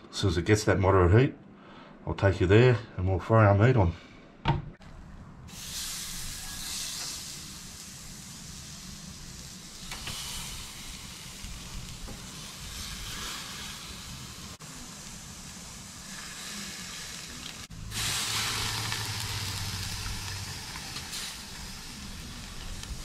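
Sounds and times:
meat sizzling on a grill: 5.5 - 23.0.

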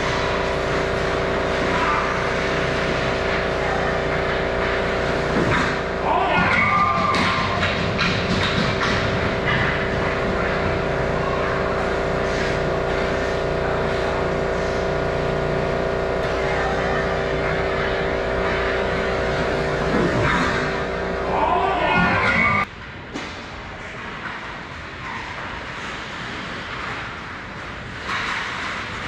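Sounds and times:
machine hum: 0.0 - 22.8
players' voices: 21.1 - 22.7
sticks and skates on ice: 22.3 - 29.0.

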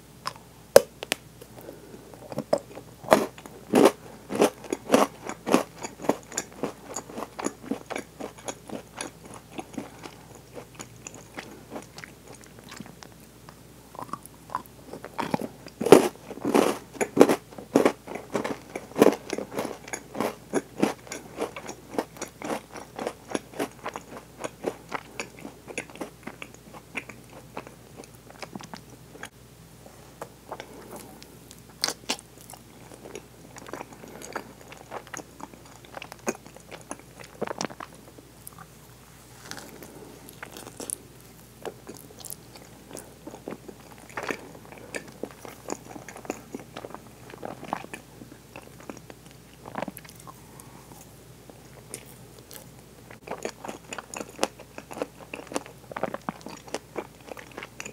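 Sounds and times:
close chewing with wet smacking: 3.4 - 15.8, 17.0 - 29.3, 40.3 - 50.4, 51.7 - 57.9.

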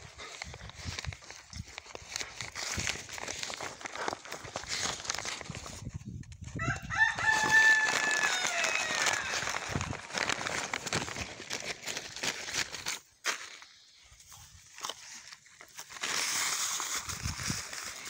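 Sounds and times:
rustling in grass and dry leaves: 0.0 - 18.0
rooster crowing: 6.6 - 9.6.

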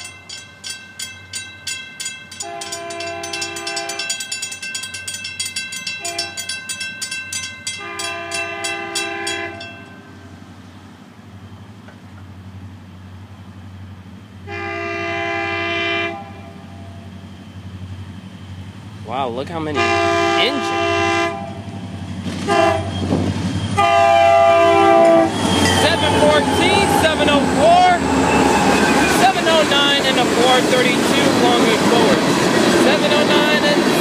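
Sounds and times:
crossing warning bell dinging: 0.0 - 10.6, 19.8 - 34.0
locomotive air horn blasts: 2.4 - 4.0, 6.0 - 6.4, 7.8 - 9.6, 14.4 - 17.0, 19.7 - 21.7, 22.4 - 23.0, 23.8 - 25.4.

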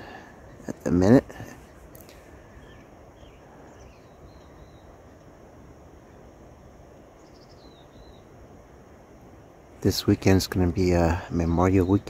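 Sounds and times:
faint bird chirps: 0.0 - 8.6
outdoor air noise: 0.0 - 12.0.

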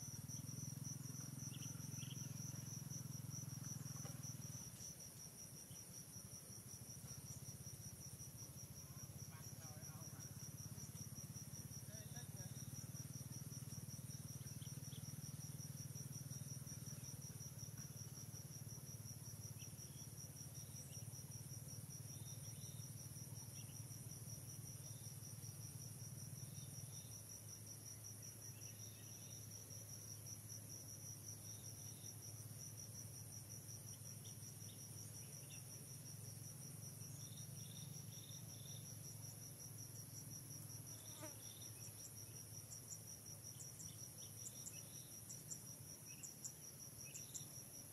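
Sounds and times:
insect pulsing trill: 0.0 - 47.9.

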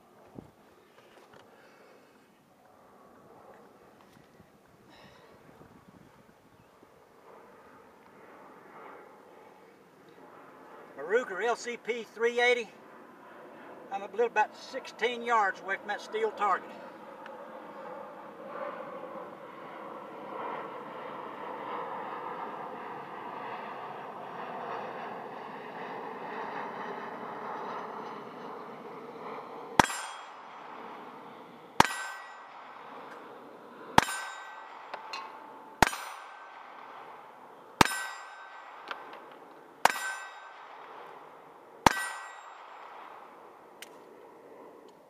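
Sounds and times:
pistol shots: 29.8 - 31.0, 31.8 - 33.2, 34.0 - 41.2, 41.8 - 43.2
steel target ringing: 29.8 - 31.2, 31.8 - 33.1, 33.9 - 43.4.

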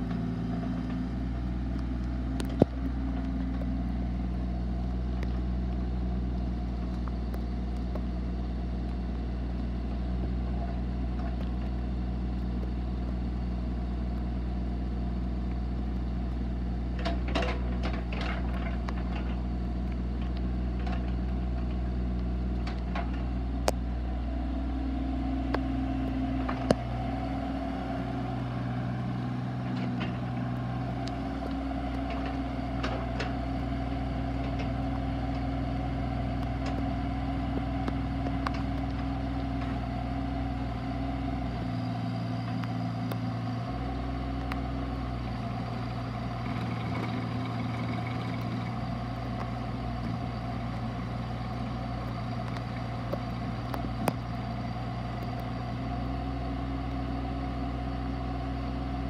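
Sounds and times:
excavator diesel engine running: 0.0 - 59.0.

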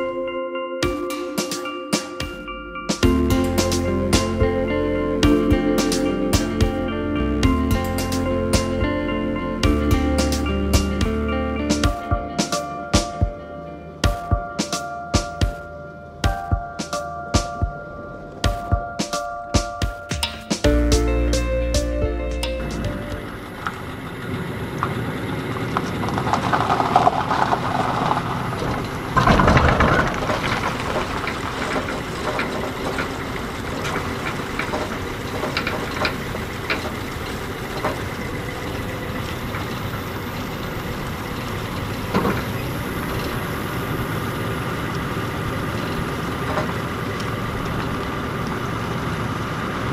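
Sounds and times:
vehicle engine running: 3.0 - 13.4, 20.6 - 49.9
trailer rattling and clunking: 16.3 - 49.9
loud clatter: 22.7 - 43.4.

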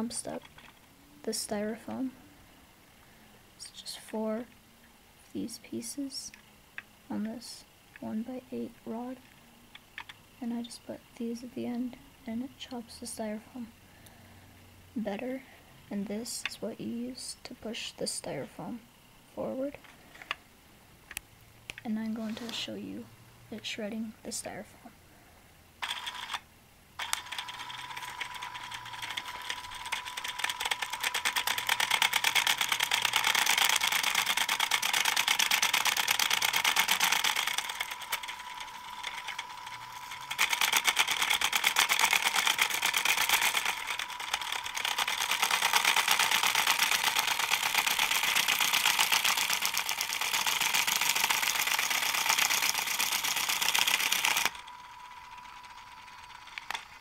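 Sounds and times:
toy motor whining with rattle: 25.8 - 26.4, 27.0 - 57.0.

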